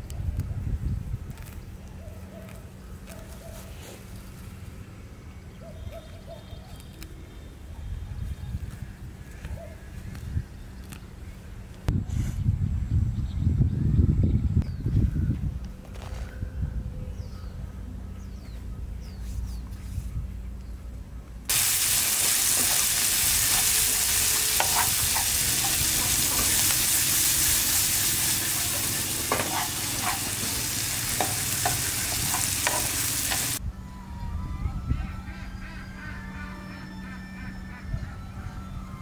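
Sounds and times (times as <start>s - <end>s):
food sizzling in a pan: 21.5s - 33.6s.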